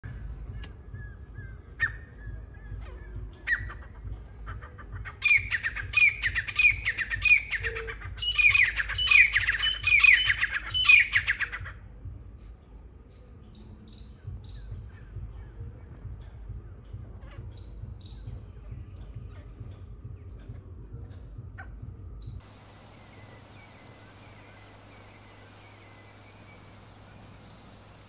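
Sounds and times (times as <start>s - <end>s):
partridge calling: 0.5s - 11.7s, 22.2s - 28.0s.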